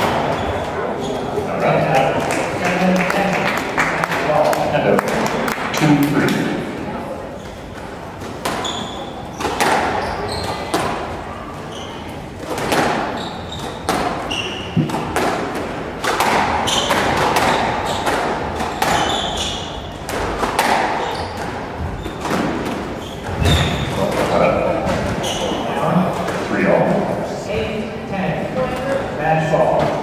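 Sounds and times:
squash ball hitting racquets: 0.0s - 1.4s, 2.0s - 6.8s, 7.4s - 27.1s
shoes squeaking on wooden floor: 0.0s - 2.1s, 7.3s - 15.2s, 16.3s - 26.2s
ball smacking court walls: 8.2s - 11.1s, 12.4s - 26.4s.

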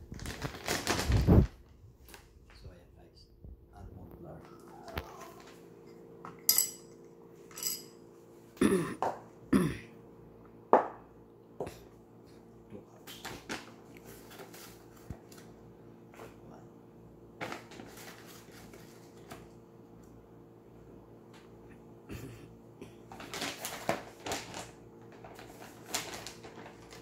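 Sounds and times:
paper bag rustling: 0.0s - 2.6s, 13.2s - 15.5s, 17.4s - 19.5s, 23.1s - 27.0s.

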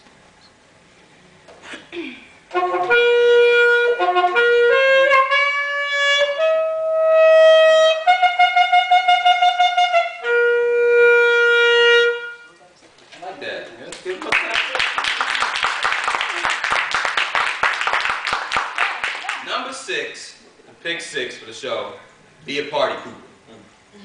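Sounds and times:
solo saxophone melody: 2.5s - 12.6s.

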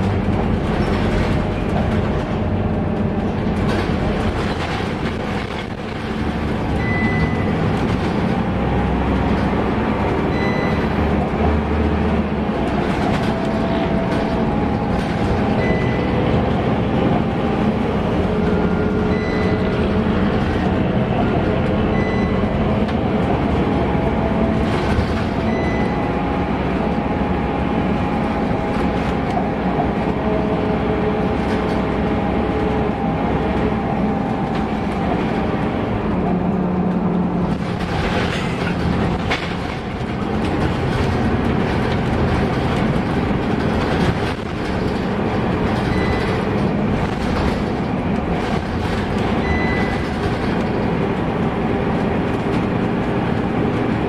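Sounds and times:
bus engine and road noise drone: 0.0s - 54.0s.

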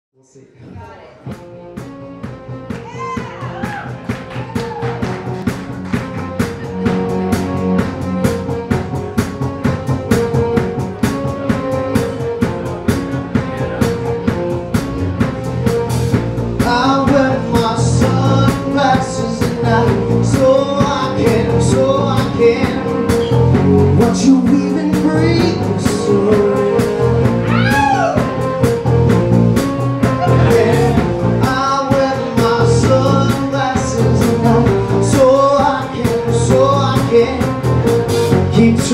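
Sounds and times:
live rock band playing: 1.3s - 38.9s
man singing lead vocal: 16.6s - 28.3s, 30.2s - 38.9s.

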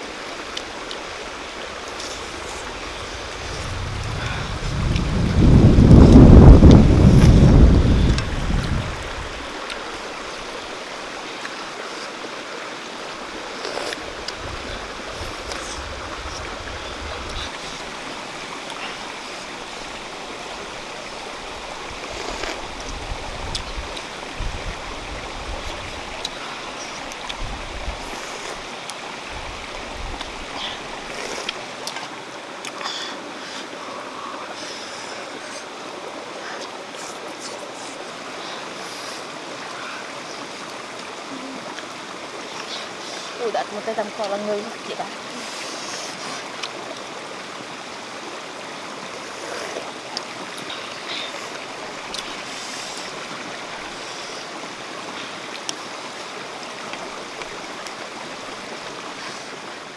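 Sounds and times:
running water rushing: 0.0s - 59.9s
wind gusts on microphone: 1.2s - 10.6s, 14.0s - 18.5s, 19.5s - 26.2s, 27.3s - 28.6s, 29.2s - 30.5s.

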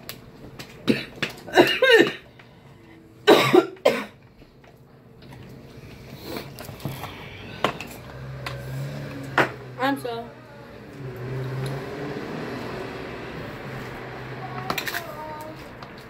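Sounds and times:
person coughing: 0.8s - 2.3s, 3.2s - 4.2s
faint eating clicks and rustles: 4.1s - 9.2s.

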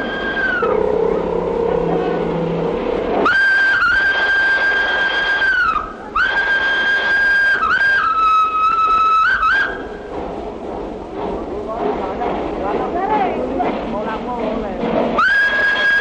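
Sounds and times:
steam whistle blasts: 0.0s - 0.9s, 3.2s - 10.0s, 15.2s - 16.0s.

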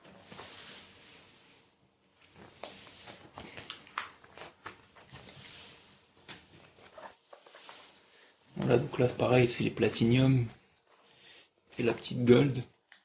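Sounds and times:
plastic binder pages rustling: 2.2s - 8.8s.

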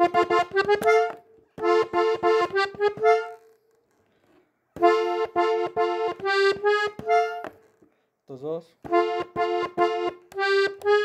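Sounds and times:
button accordion melody: 0.0s - 3.7s, 4.8s - 7.7s, 8.9s - 11.0s.

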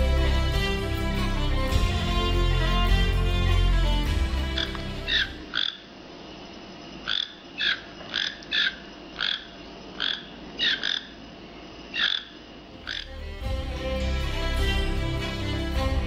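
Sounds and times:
toucan calling: 4.5s - 6.0s, 7.0s - 11.2s, 11.9s - 13.4s.

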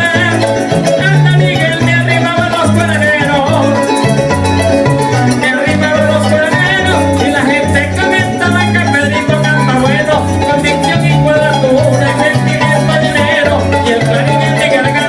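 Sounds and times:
electric bass: 0.0s - 15.0s
man singing: 0.0s - 15.0s
maracas: 0.0s - 15.0s.

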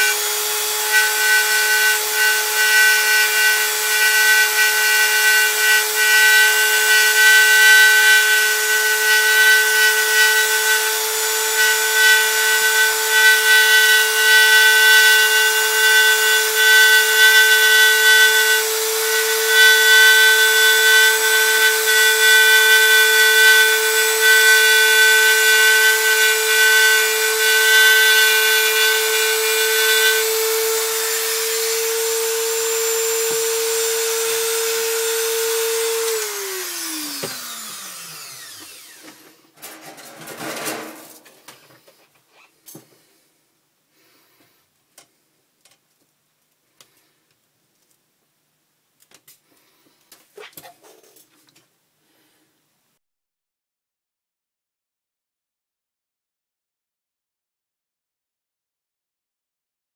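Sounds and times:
rotary tool motor whining: 0.0s - 39.3s.

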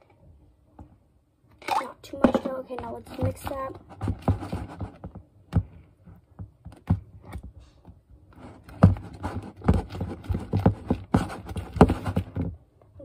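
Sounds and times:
slime stirred in plastic bowl: 1.6s - 5.1s, 8.4s - 12.5s.

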